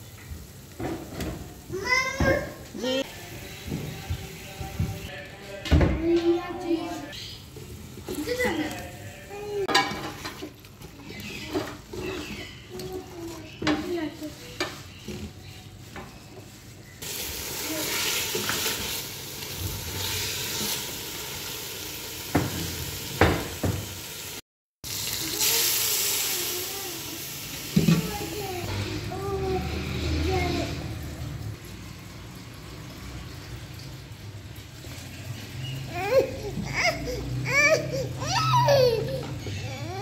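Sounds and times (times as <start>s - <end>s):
chicken sizzling in a pot: 0.0s - 5.2s, 6.8s - 35.9s
spatula scraping a pot: 7.4s - 17.0s
water hissing in hot pot: 17.0s - 35.9s.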